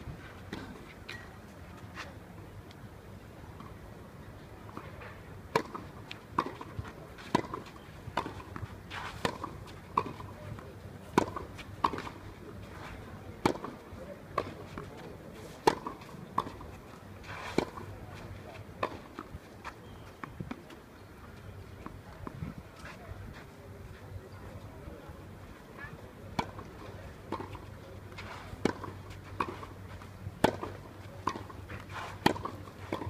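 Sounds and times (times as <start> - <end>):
racket hitting tennis ball: 5.5 - 10.3, 30.4 - 33.0.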